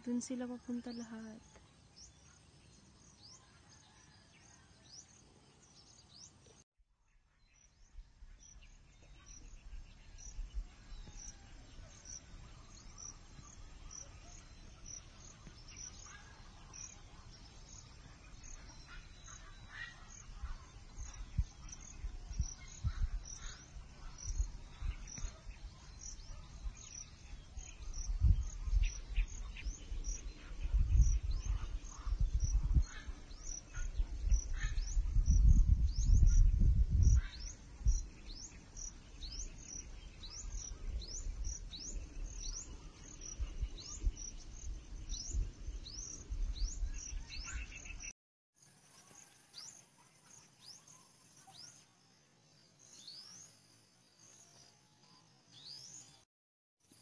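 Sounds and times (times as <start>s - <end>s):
wind buffeting microphone: 18.4s - 48.1s.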